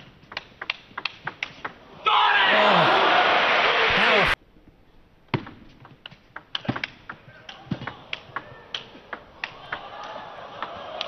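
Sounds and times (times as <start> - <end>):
table tennis ball clicking: 0.0 - 1.8, 5.8 - 9.9
crowd noise: 2.5 - 4.4, 7.2 - 11.0.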